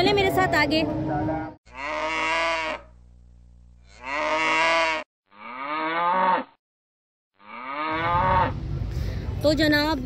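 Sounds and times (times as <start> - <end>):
cattle mooing: 1.7 - 2.9, 3.8 - 6.6, 7.4 - 8.6.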